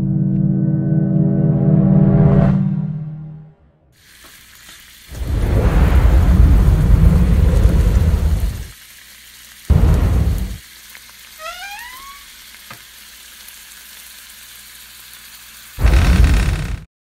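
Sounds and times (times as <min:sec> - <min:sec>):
faint crackling hiss: 0:04.0 - 0:16.7
deep rumbling boom: 0:05.2 - 0:08.7, 0:09.7 - 0:10.6, 0:15.8 - 0:16.9.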